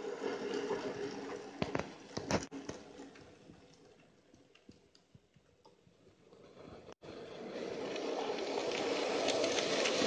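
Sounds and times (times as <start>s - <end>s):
model trains running: 7.0s - 10.0s.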